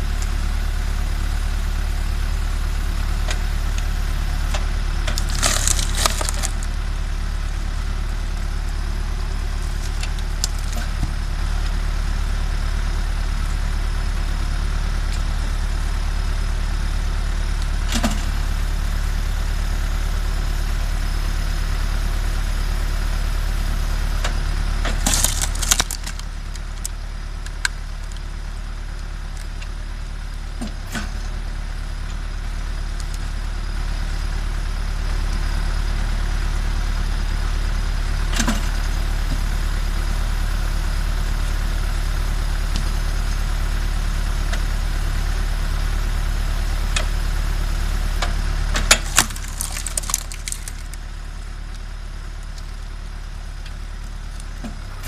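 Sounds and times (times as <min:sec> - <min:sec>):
tractor diesel engine running: 0:00.0 - 0:55.0
logs cracking as they split: 0:03.3 - 0:07.0, 0:09.4 - 0:11.8, 0:24.2 - 0:29.8, 0:48.2 - 0:52.7.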